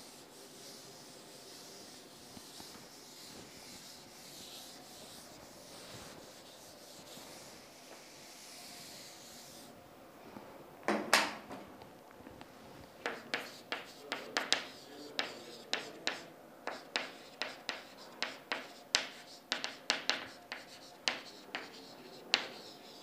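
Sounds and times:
pen writing on paper: 13.0 - 23.0.

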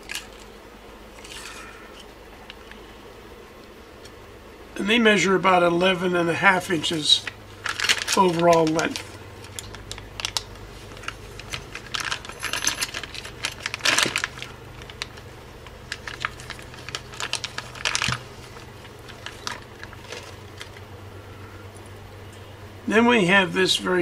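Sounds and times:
plastic bag crinkling: 6.6 - 20.9
metal parts clinking: 11.0 - 14.5.

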